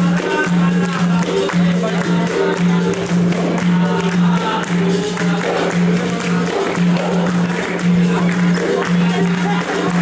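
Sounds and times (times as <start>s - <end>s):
group singing: 0.0s - 10.0s
hand drum rhythm: 0.0s - 10.0s
hand-clapping: 0.0s - 10.0s
jingling percussion: 0.0s - 10.0s.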